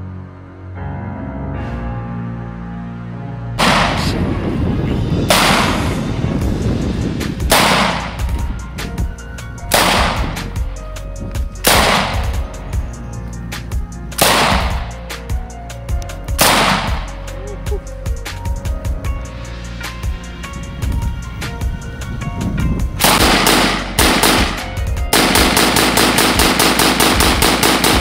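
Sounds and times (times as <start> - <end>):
background music with steady beat: 3.5 - 28.0
rifle shots with echo: 3.6 - 4.2, 5.3 - 6.0, 7.5 - 8.3, 9.7 - 10.4, 11.6 - 12.4, 14.2 - 15.0, 16.4 - 17.1, 23.0 - 28.0.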